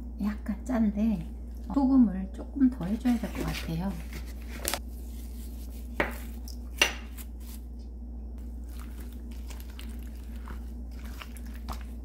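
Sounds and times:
wet squishing and clacking: 8.7 - 12.0.

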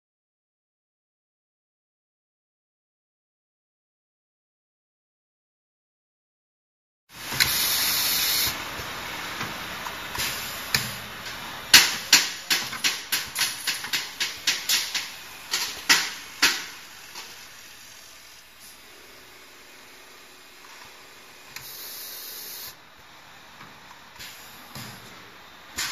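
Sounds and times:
pneumatic air hiss: 7.2 - 8.6, 10.1 - 11.0, 21.5 - 22.8, 24.2 - 25.0
machine sharp clacks: 11.7 - 17.3.

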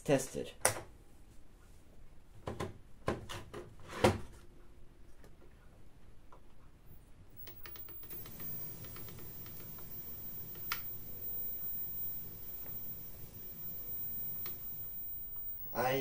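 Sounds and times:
low steady hiss and hum: 4.7 - 16.0.

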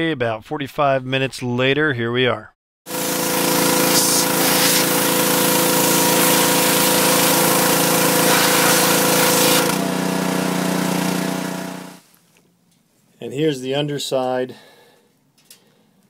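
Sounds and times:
pressure washer motor humming: 2.9 - 12.0
pressure washer spraying water: 2.9 - 12.0.

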